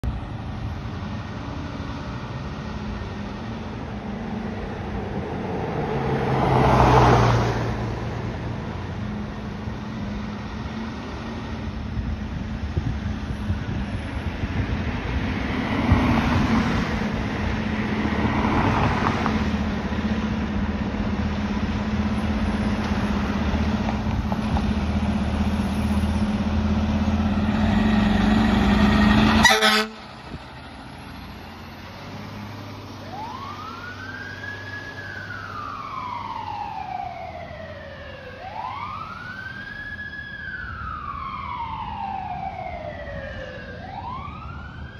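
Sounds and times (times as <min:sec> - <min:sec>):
fire truck siren wailing: 0:24.6 - 0:44.9.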